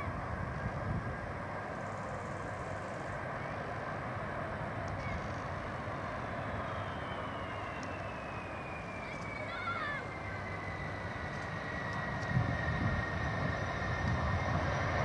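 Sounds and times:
jet engine high whine: 0.0 - 15.0
jet engines rumbling: 0.0 - 15.0.

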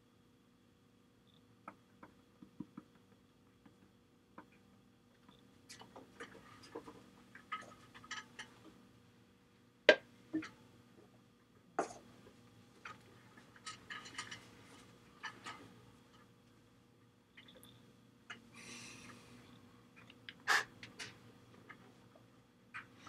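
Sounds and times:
faint steady hum: 0.0 - 23.0
small clicks and taps: 1.6 - 8.8.

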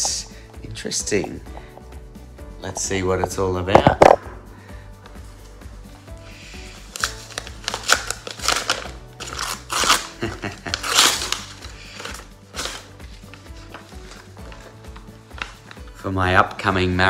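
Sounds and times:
background music: 0.0 - 17.0
paper ripping and rustling: 6.8 - 15.9.

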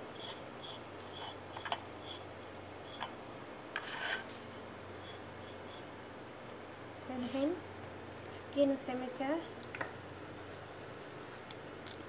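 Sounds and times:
fingers scraping paste on plate: 0.1 - 2.3.

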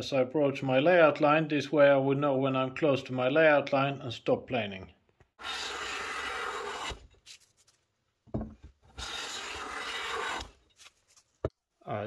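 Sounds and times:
plane shaving wood: 5.4 - 7.0, 8.9 - 10.6.

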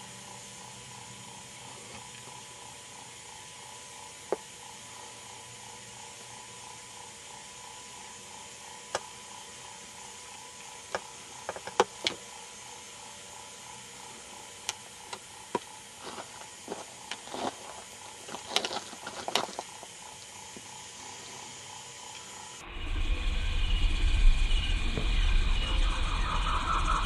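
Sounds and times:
sharp clicks and ticks: 13.7 - 16.2.

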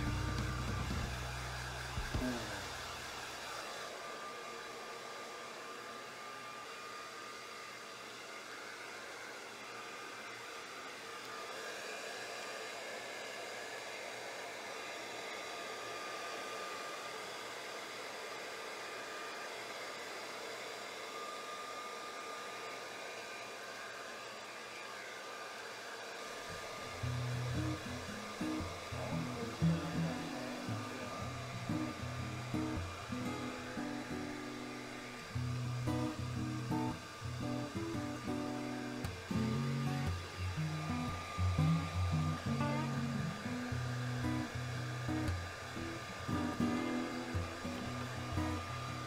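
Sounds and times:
hair dryer running: 0.0 - 49.0.

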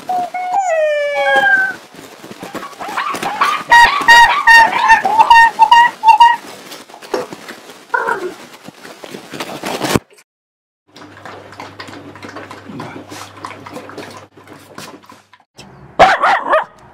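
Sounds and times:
dog chewing and licking: 10.9 - 15.5.

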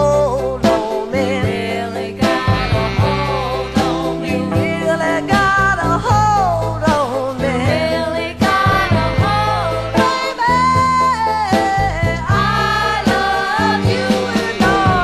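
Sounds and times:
song with lead vocal and band: 0.0 - 15.0.

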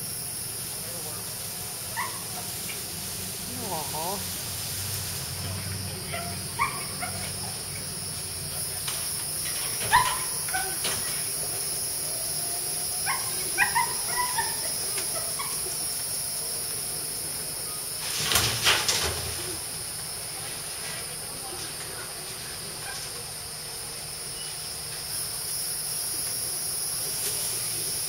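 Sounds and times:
high insect drone: 0.0 - 28.0
rushing hissing noise: 0.0 - 28.0
dog barking: 1.9 - 2.5, 6.1 - 7.6, 9.8 - 10.8, 13.0 - 15.6.

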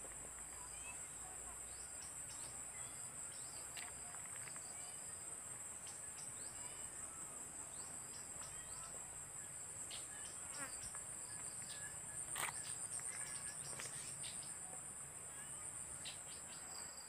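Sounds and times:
insect chorus: 0.0 - 17.0
bird chirps: 9.9 - 14.6.

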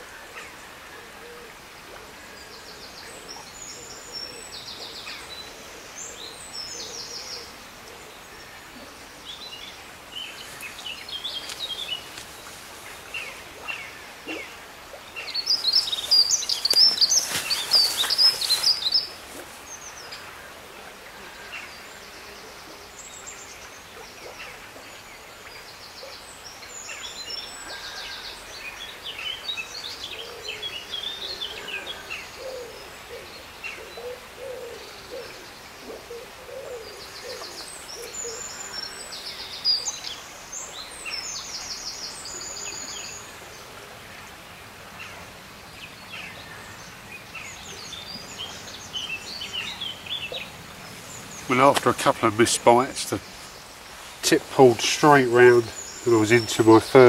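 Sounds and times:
birds singing: 0.0 - 43.9, 45.0 - 57.0
low repeated bird calls: 0.0 - 57.0
high chirping birdsong: 9.3 - 20.2, 45.8 - 57.0.

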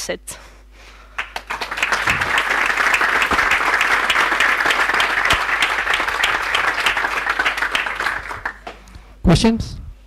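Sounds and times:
audience applause: 1.2 - 8.8.

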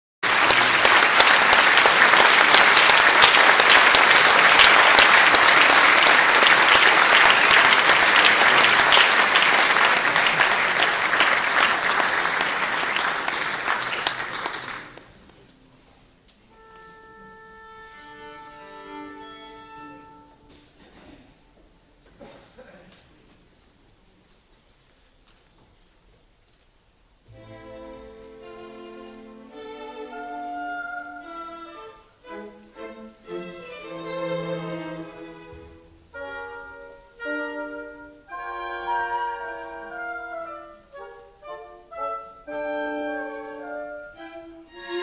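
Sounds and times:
audience applauding: 0.2 - 15.3
orchestra strings tuning: 15.5 - 20.8, 27.3 - 45.0.

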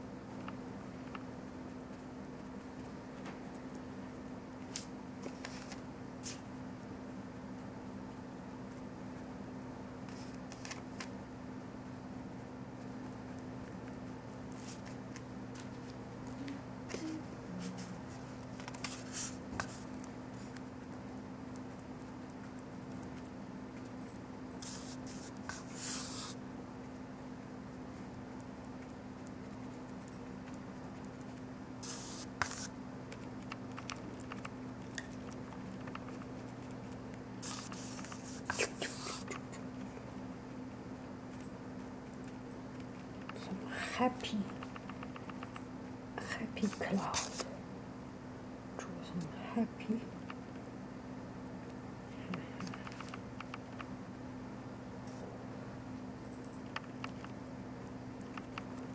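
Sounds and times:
steady low hum: 0.0 - 58.9
paintbrush scrubbing on paper: 24.6 - 26.4, 31.8 - 32.8, 37.4 - 39.3, 46.7 - 47.5.

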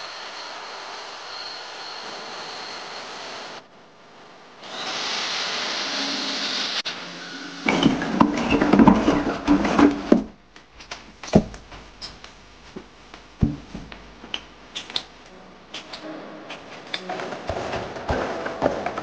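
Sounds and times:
low hum: 6.8 - 19.0
clattering: 7.7 - 12.3, 15.8 - 19.0
mop on tile floor: 7.7 - 15.0.

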